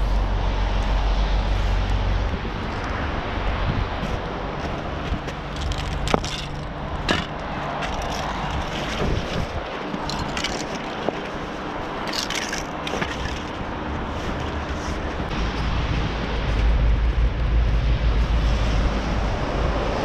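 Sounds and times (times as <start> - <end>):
bag rustling and scraping: 3.8 - 15.3
metal cans clinking: 9.9 - 11.3, 12.0 - 13.6.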